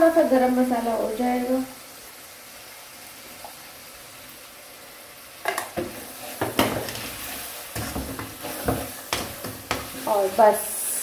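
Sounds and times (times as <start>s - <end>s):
food sizzling in a wok: 0.0s - 11.0s
wooden spatula scraping a pan: 5.5s - 11.0s.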